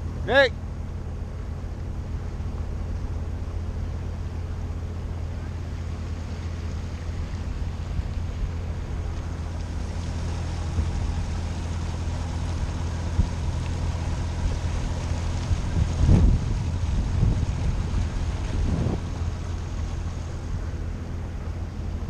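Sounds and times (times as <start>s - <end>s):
boat engine humming: 0.0s - 22.0s
wind buffeting microphone: 7.0s - 21.3s.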